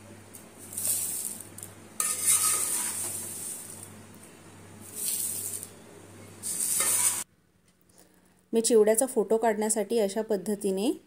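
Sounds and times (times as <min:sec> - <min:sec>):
utensil scraping on metal: 0:02.0 - 0:03.8, 0:06.4 - 0:07.3.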